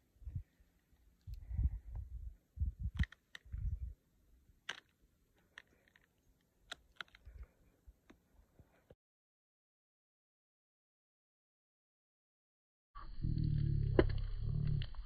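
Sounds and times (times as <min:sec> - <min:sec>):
wind buffeting microphone: 0:01.3 - 0:04.0.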